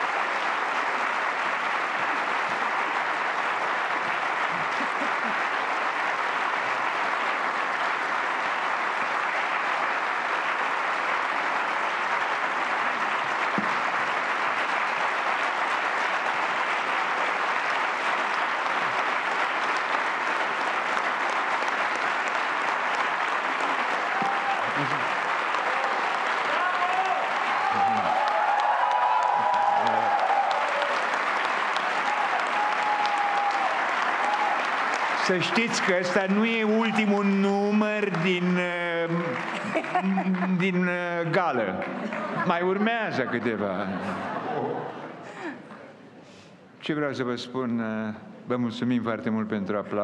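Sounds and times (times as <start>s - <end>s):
large audience applauding: 0.0s - 45.6s.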